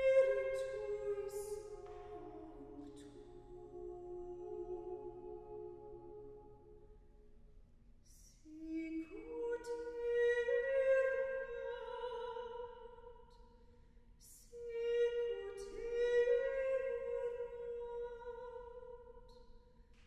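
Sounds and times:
women's choir singing: 0.0 - 6.6.

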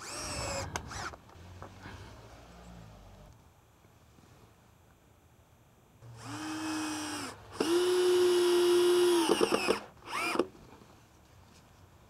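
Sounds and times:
cordless drill driving screws: 0.0 - 1.2, 6.1 - 10.5.

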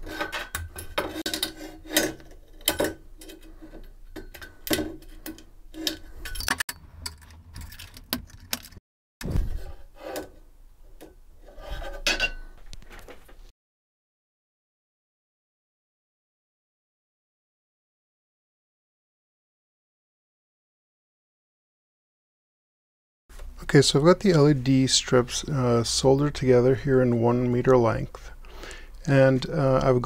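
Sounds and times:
metal scraping on metal: 0.0 - 7.4, 9.4 - 10.5, 11.4 - 12.6.

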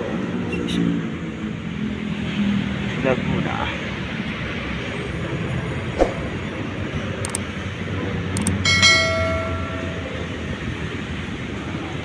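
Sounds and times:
notification bell ding: 8.7 - 10.5.

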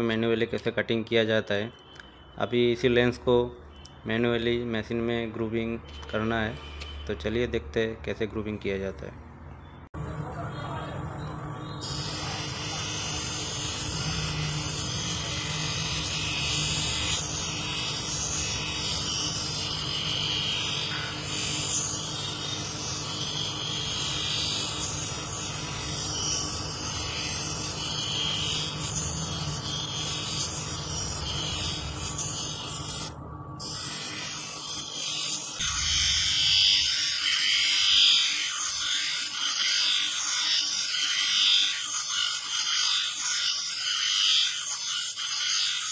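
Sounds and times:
machine motor hum: 10.0 - 37.1.

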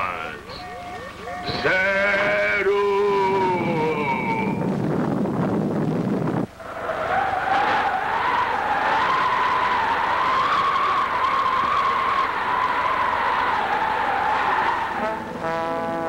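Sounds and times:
loud cartoon rumbling: 1.5 - 6.8.

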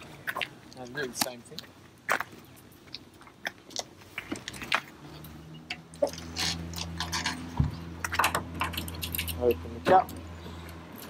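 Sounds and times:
footsteps and scuffing: 0.0 - 5.4.

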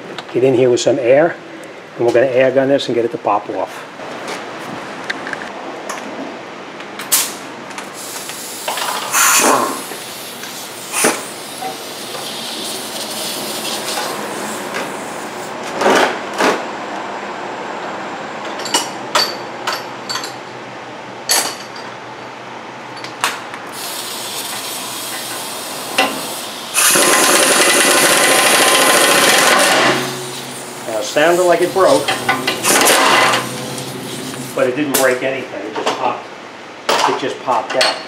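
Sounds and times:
pneumatic impact wrench hammering: 8.0 - 15.0, 23.7 - 34.6.

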